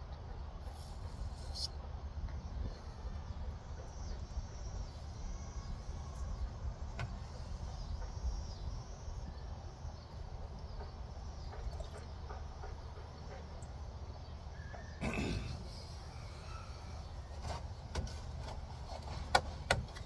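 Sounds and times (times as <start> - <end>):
faint bird chirps: 0.7 - 1.8, 2.4 - 17.4.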